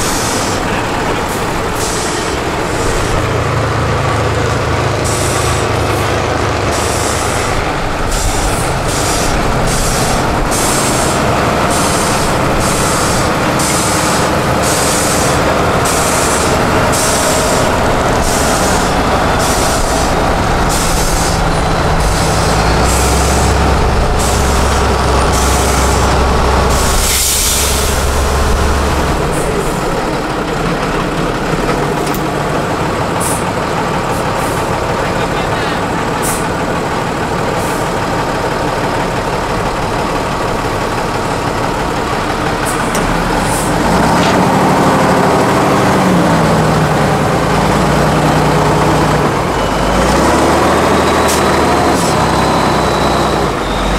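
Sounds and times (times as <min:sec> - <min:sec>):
heavy diesel truck engines straining: 0:00.0 - 0:53.9
short air hisses: 0:26.7 - 0:28.1.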